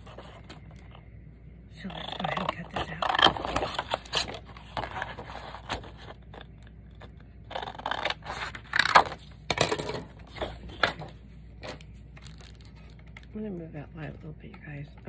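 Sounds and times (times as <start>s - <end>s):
paper rustling and scraping: 0.0s - 1.0s, 2.0s - 9.3s.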